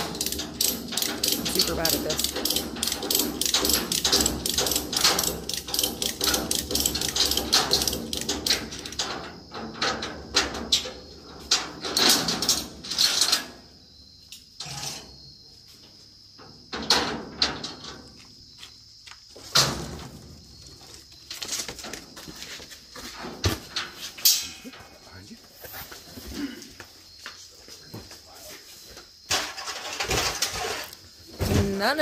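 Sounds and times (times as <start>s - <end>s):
metallic ratchet clicking: 0.0s - 9.0s
metal clanks: 0.0s - 13.6s, 23.1s - 24.9s, 29.3s - 31.0s.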